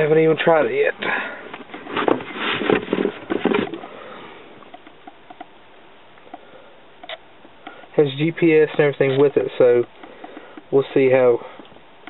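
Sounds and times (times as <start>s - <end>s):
cardboard box rustling and scraping: 1.5s - 3.9s
faint taps: 9.8s - 10.7s.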